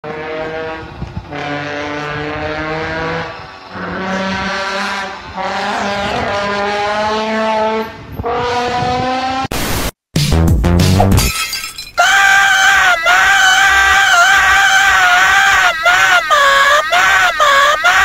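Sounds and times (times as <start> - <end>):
distorted horn-like droning tones: 0.0 - 9.5
harsh burst of noise: 9.5 - 10.0.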